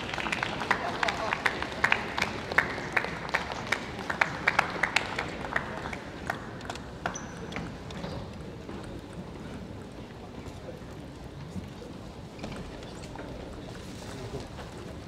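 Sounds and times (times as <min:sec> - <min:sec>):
hand claps: 0:00.0 - 0:07.3
low crowd murmur: 0:00.0 - 0:15.0.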